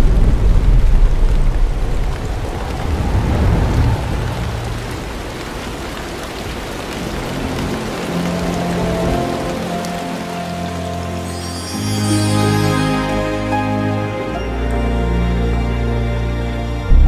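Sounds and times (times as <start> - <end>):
thunder rumbling: 0.0 - 11.5
heavy rain: 0.0 - 17.0.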